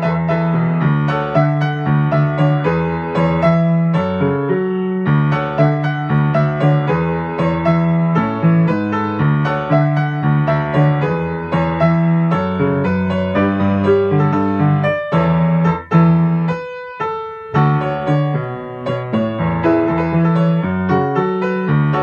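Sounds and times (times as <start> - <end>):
solo grand piano pop arrangement: 0.0 - 22.0.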